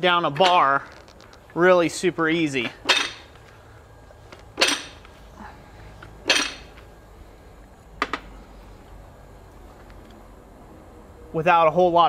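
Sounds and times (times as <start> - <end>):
press punch clanking on metal: 6.2 - 6.7.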